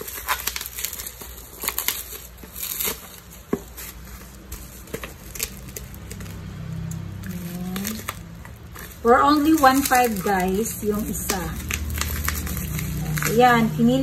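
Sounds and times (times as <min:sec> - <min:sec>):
bubble wrap crinkling and tearing: 0:00.0 - 0:14.0.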